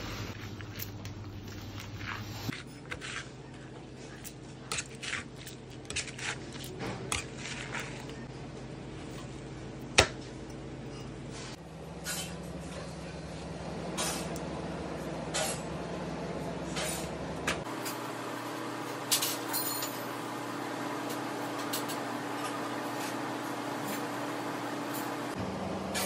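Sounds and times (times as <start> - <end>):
steady low hum: 7.1 - 26.0.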